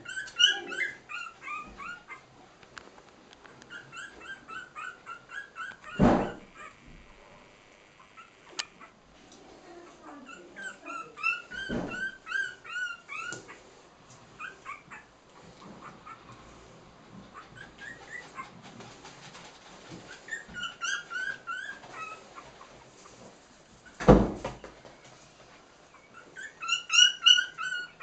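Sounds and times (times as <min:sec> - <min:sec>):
puppies squeaking and whimpering: 0:00.0 - 0:02.3, 0:03.6 - 0:06.9, 0:08.0 - 0:09.0, 0:09.7 - 0:13.7, 0:14.3 - 0:15.1, 0:15.8 - 0:16.6, 0:17.3 - 0:24.2, 0:25.8 - 0:28.0.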